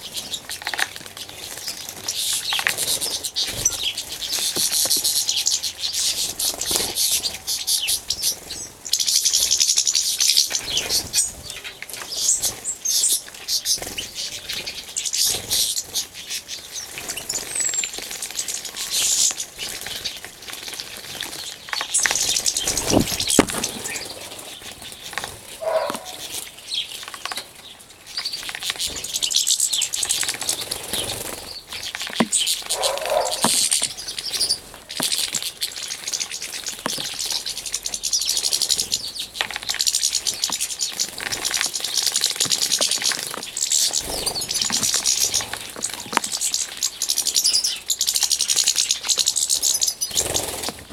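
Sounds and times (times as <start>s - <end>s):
high bird chirps: 21.7s - 27.0s, 28.2s - 50.6s.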